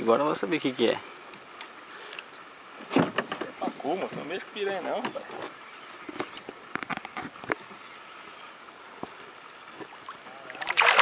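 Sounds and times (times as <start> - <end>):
faint water noise: 0.0 - 11.0
fish thrashing and splashing: 9.8 - 11.0.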